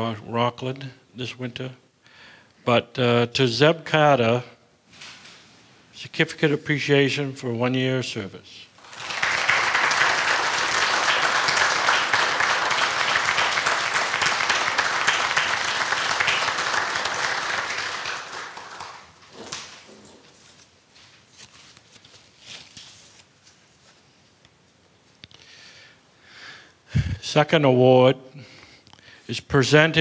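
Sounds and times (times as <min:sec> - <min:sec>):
small audience applauding: 0:08.8 - 0:19.9.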